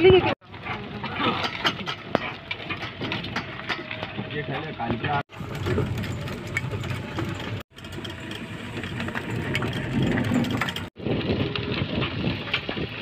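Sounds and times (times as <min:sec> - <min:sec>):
body rattles and knocks: 0:05.3 - 0:11.0
vehicle engine running: 0:05.3 - 0:11.0.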